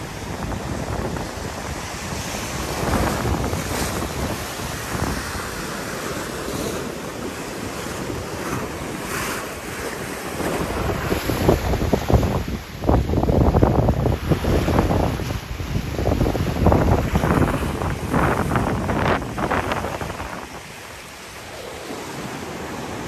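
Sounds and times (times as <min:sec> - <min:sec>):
sea surf breaking on rocks: 0:00.0 - 0:23.0
wind buffeting microphone: 0:00.0 - 0:23.0.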